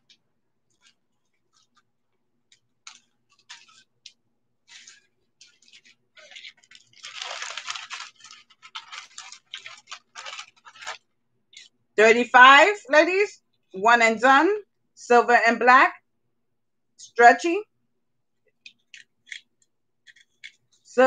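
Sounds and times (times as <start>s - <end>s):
jewelry rustling and scratching: 0.0s - 11.8s, 18.6s - 20.9s.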